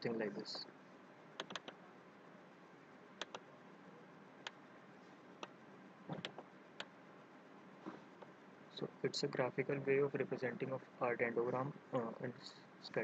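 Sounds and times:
faint room hiss: 0.0 - 13.0
computer mouse clicking: 1.4 - 1.8, 3.2 - 3.4.

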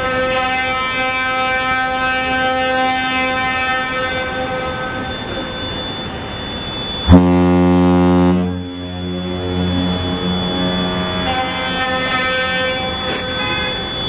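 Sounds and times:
deep ship's horn blast: 7.1 - 13.0
high-pitched ship's horn: 7.1 - 13.9.

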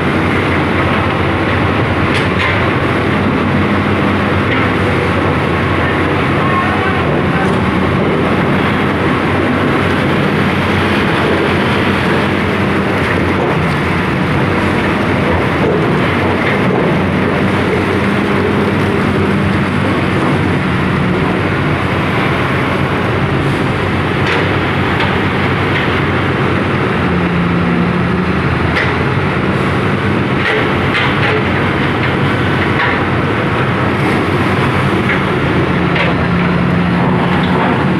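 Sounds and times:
diesel engine and hydraulics droning: 0.0 - 37.9.

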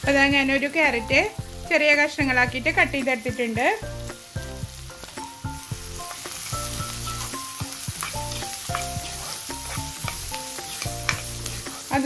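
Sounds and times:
soft background music: 0.0 - 12.0
vegetables sizzling in oil: 0.0 - 12.0
spoon clicking against pan: 8.0 - 11.5.

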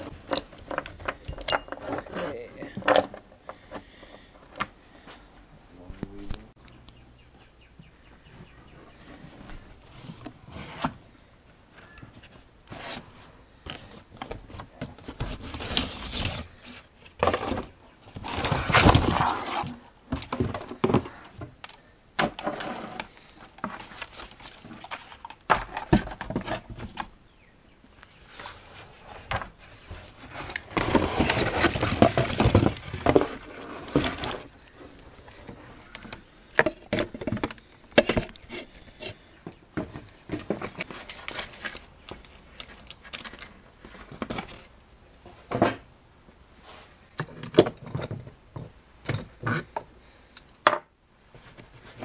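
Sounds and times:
rustling: 7.4 - 27.2, 27.8 - 45.6.

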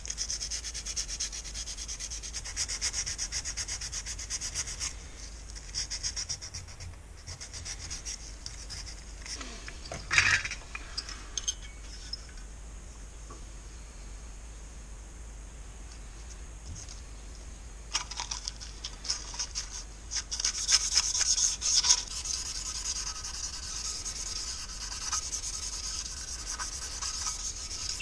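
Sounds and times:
metal engine parts clattering: 9.8 - 12.4
hands scraping engine part: 17.9 - 28.0.

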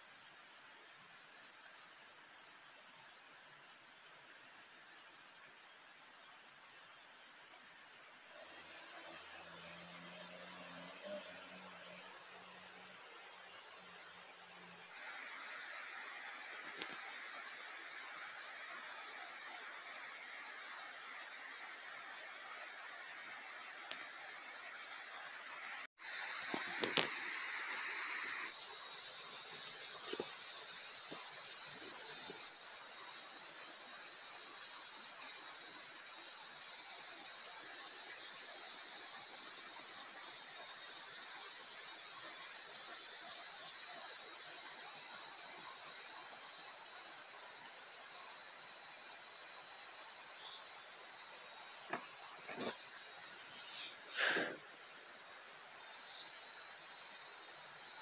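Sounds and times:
night insects chorus: 0.0 - 58.0
campfire crackle: 26.0 - 27.8.

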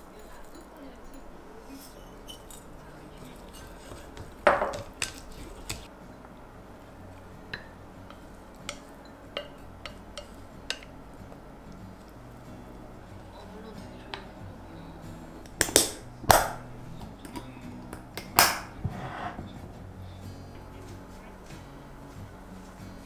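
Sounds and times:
utensils clicking and clinking: 0.0 - 5.9
dishes clattering: 1.9 - 5.9, 7.5 - 11.0.

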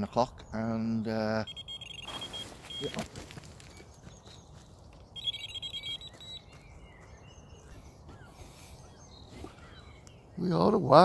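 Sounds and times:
electronic bite alarm beeping: 1.4 - 3.1, 5.2 - 6.5
faint rustling and steps: 2.0 - 5.0.

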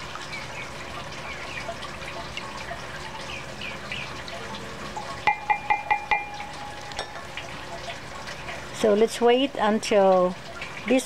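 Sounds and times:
spatula tapping glass: 5.3 - 7.2.

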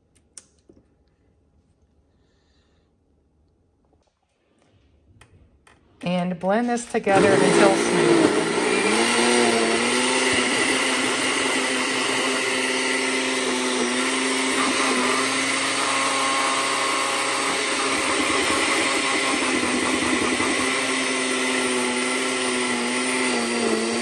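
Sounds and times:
blender running: 7.0 - 24.0.

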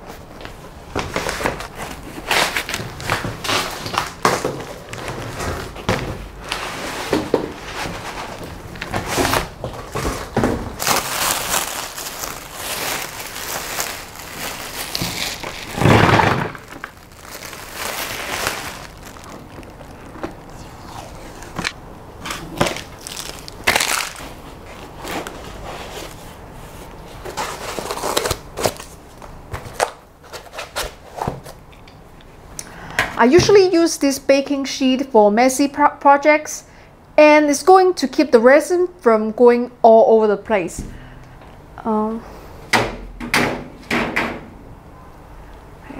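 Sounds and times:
foam packing handling: 1.0 - 29.0
plastic bag crinkling: 8.2 - 21.8, 22.4 - 25.4.

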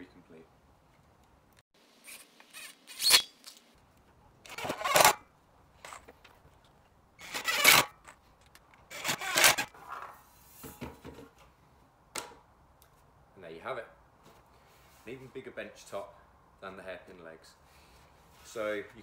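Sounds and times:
cordless drill driving screws: 7.2 - 7.9, 8.9 - 9.7.

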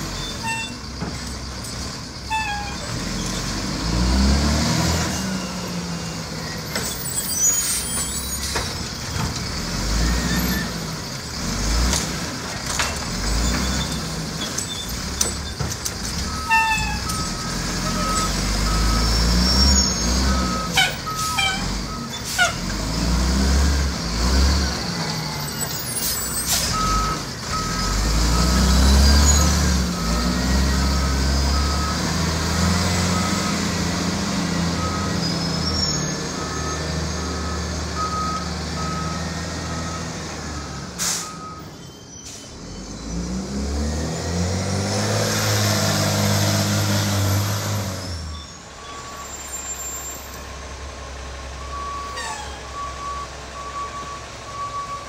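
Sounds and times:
truck engine revving: 0.0 - 41.4, 42.5 - 55.0
reversing beeper: 16.2 - 22.3, 24.8 - 43.6, 47.1 - 50.4, 51.6 - 55.0.

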